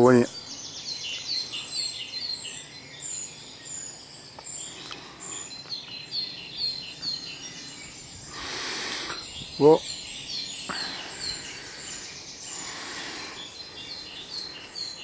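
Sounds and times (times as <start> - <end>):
birds singing: 0.0 - 15.0
faint steady hiss: 0.0 - 15.0.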